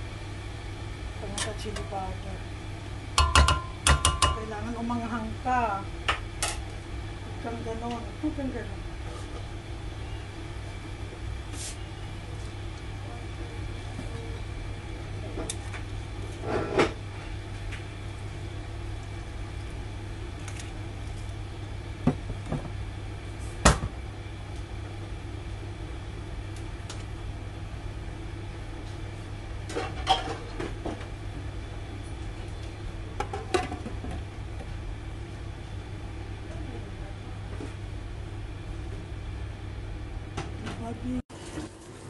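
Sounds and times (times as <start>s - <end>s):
steady low hum: 0.0s - 41.2s
kitchenware knocking and clinking: 3.2s - 4.4s.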